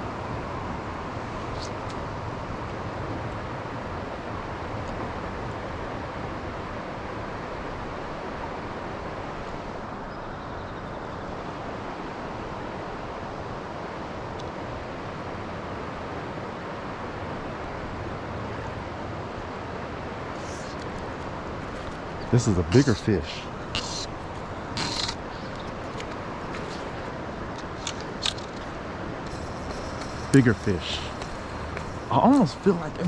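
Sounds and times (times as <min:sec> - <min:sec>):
river water rushing: 0:11.3 - 0:33.0.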